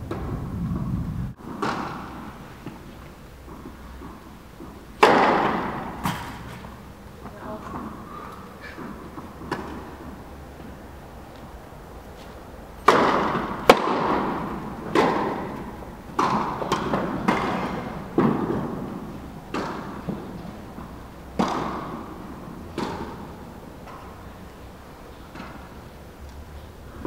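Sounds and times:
tennis ball bounces: 1.4 - 8.0, 8.8 - 10.2, 12.8 - 24.2
tennis racket strikes: 1.5 - 2.8, 3.4 - 6.8, 12.8 - 18.8.

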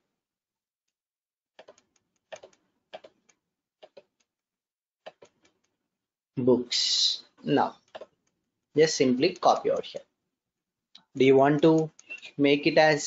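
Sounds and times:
computer mouse clicks: 1.6 - 4.3, 5.0 - 5.8, 7.8 - 10.1, 11.0 - 13.0.

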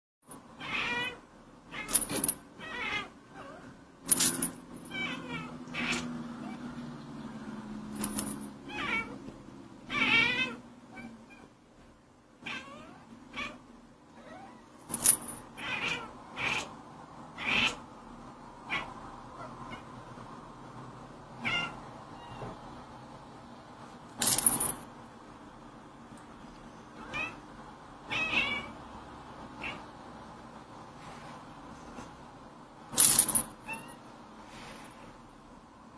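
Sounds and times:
cat meowing: 0.6 - 1.9, 4.9 - 6.6, 8.7 - 9.2, 9.9 - 11.5, 12.4 - 13.6, 15.6 - 16.7, 21.4 - 22.6, 27.0 - 27.4, 28.1 - 28.8, 29.6 - 29.9, 33.6 - 34.0
loud rattling noise: 4.0 - 4.9.

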